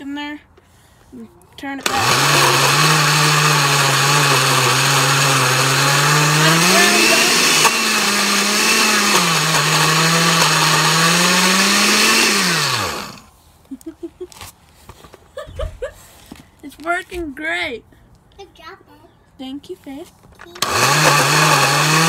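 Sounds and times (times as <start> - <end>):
blender motor grinding: 1.8 - 13.3, 20.6 - 22.0.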